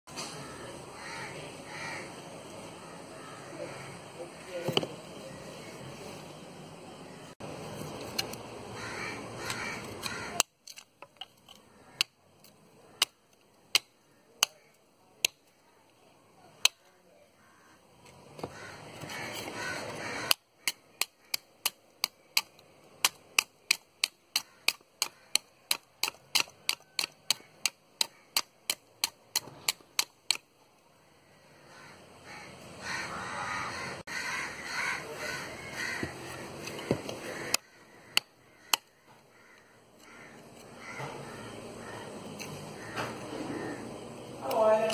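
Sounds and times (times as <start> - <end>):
rough continuous scraping: 18.0 - 30.4, 33.7 - 44.9.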